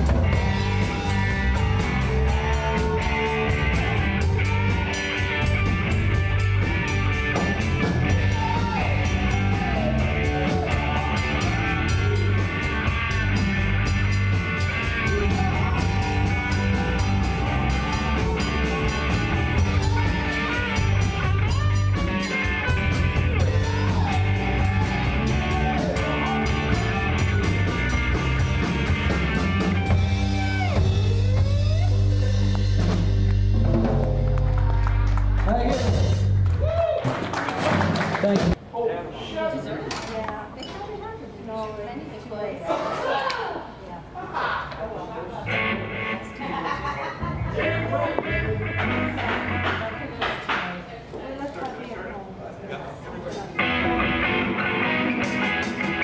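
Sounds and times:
wavering lead guitar line: 0.0 - 36.6, 45.5 - 50.2, 53.6 - 56.0
rock band playing: 0.0 - 38.6, 45.5 - 50.3, 53.6 - 56.0.

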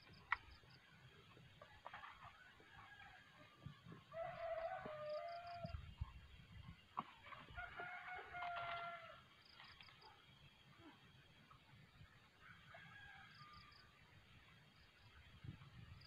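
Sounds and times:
rooster crowing: 4.1 - 5.8, 7.6 - 9.2.

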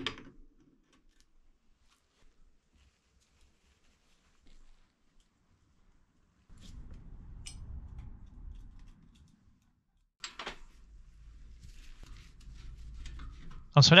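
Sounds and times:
low rumble: 6.6 - 9.0.

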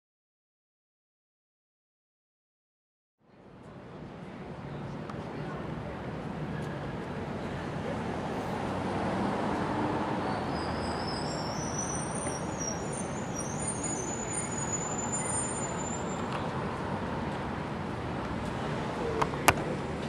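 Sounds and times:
road vehicles rumbling past: 3.4 - 20.0
high thin squeal: 10.2 - 16.2.

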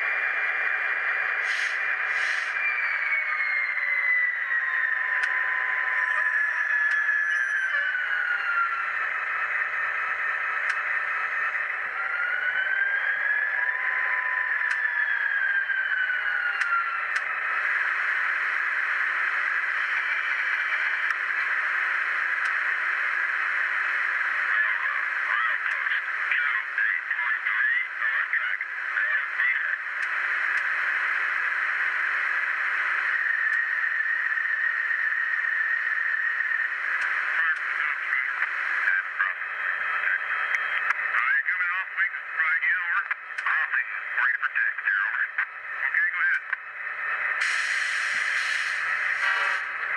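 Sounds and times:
tinny diesel locomotive sounds: 46.8 - 49.9.

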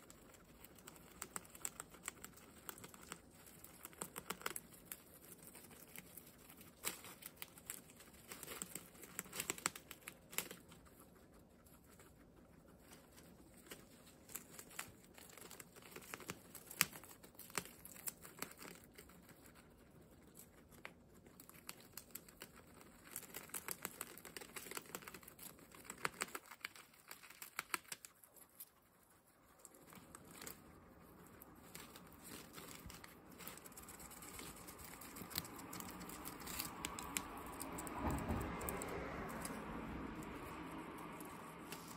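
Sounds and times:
guinea pigs chewing leaves: 0.0 - 41.9
leaf rustling: 29.7 - 38.0.

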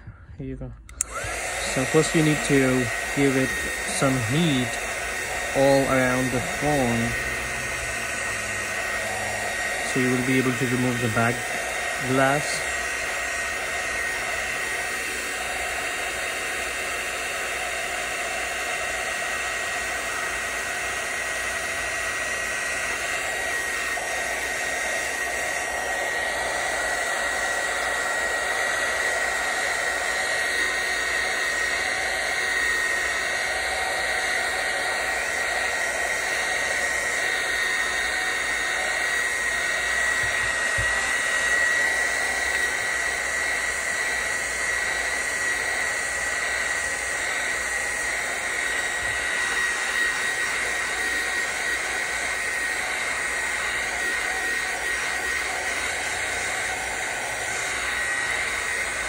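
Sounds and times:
heat gun blowing with whine: 0.0 - 59.0.

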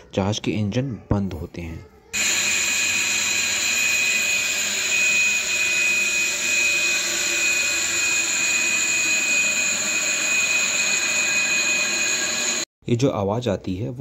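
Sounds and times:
gas turbine high-pitched whine: 2.2 - 12.7.

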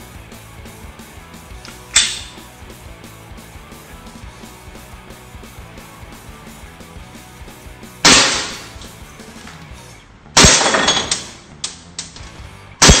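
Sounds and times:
pistol shots cracking: 8.1 - 8.9, 10.4 - 11.3.

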